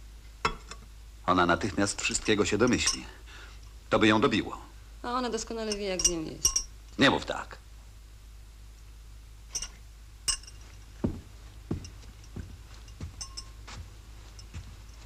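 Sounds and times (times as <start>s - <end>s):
glass clinks: 2.6s - 3.2s, 5.7s - 6.8s, 9.5s - 10.8s, 11.7s - 15.0s
slow footsteps: 9.6s - 15.0s.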